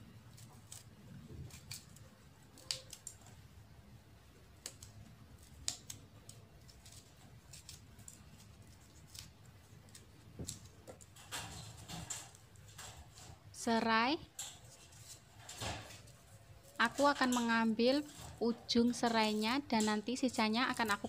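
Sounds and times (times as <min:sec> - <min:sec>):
knife cutting chilies: 0:00.3 - 0:03.4, 0:04.4 - 0:11.1, 0:14.6 - 0:21.0.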